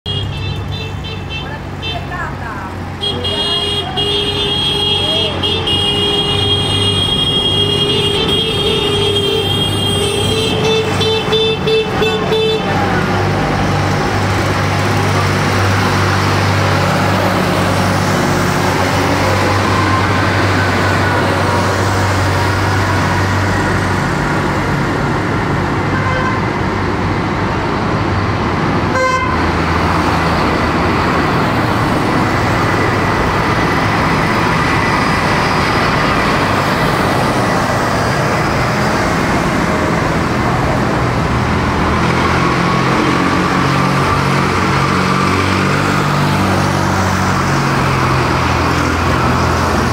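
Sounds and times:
horns tooting: 0:00.1 - 0:13.5, 0:25.8 - 0:26.6, 0:28.9 - 0:29.5
tractor engines running: 0:00.1 - 0:25.9, 0:26.5 - 0:49.9.

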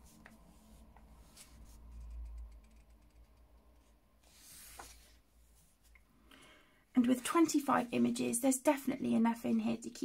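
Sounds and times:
hand brushing across paper: 0:00.0 - 0:02.1, 0:04.2 - 0:05.9
paper page rustling: 0:04.2 - 0:05.2.

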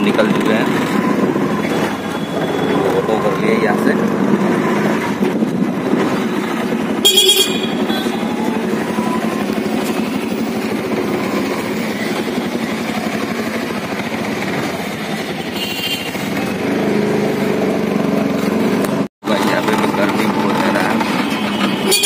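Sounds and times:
auto-rickshaw engine rattling drone: 0:00.0 - 0:22.0
vehicle horn: 0:07.0 - 0:10.3, 0:15.4 - 0:16.2, 0:21.4 - 0:22.0.

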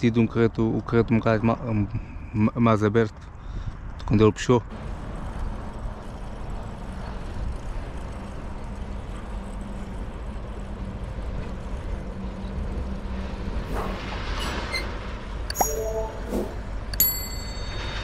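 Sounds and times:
low engine-like hum: 0:04.7 - 0:18.0.

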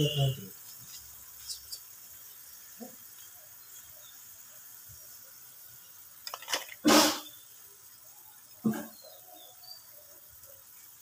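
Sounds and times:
curry liquid hissing in a pan: 0:00.0 - 0:11.0
short loud noise: 0:06.8 - 0:07.3.

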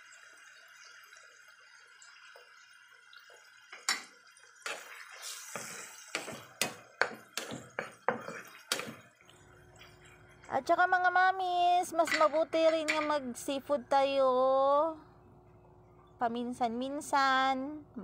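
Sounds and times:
sauce simmering with small pops: 0:00.0 - 0:10.8
wooden spatula scraping a pan: 0:04.6 - 0:09.1.

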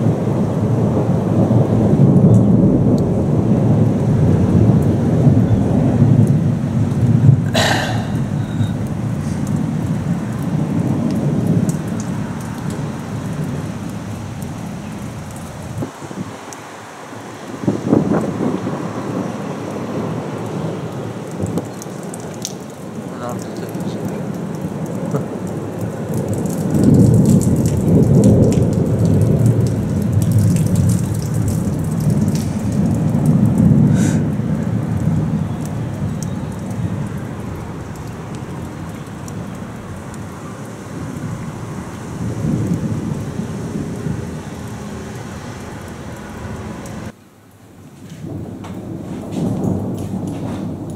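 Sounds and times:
thunder rumbling: 0:00.0 - 0:47.2, 0:48.2 - 0:50.9
rain falling: 0:00.0 - 0:50.9
crackling hiss: 0:04.8 - 0:17.6, 0:20.9 - 0:50.9.

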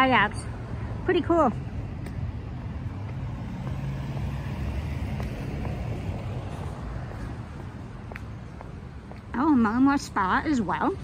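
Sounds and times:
road noise: 0:00.0 - 0:11.0
vehicle engine rumble: 0:00.0 - 0:11.0.

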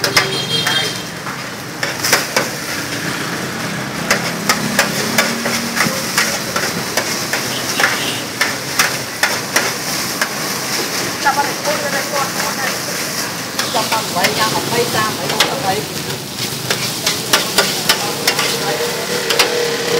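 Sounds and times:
metal spatula clacking on griddle: 0:00.0 - 0:02.6, 0:04.0 - 0:10.5, 0:12.4 - 0:14.6, 0:15.2 - 0:19.6
frying sizzle: 0:00.0 - 0:19.9.

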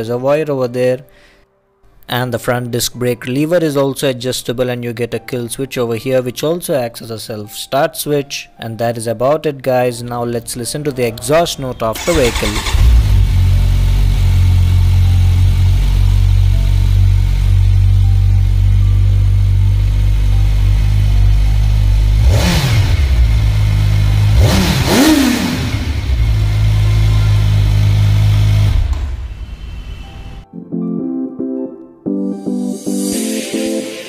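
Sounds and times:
motorcycle engine idling: 0:12.0 - 0:30.0.

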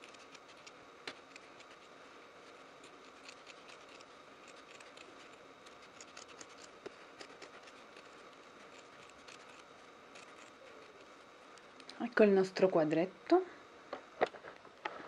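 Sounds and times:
faint steady hum: 0:00.0 - 0:15.0
scissors snipping fabric: 0:02.8 - 0:10.6.

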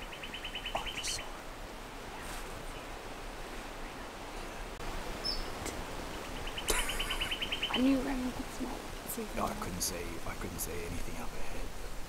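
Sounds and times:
faint bird chirps: 0:00.0 - 0:01.4, 0:03.7 - 0:08.0
wind through bush: 0:00.0 - 0:12.0.

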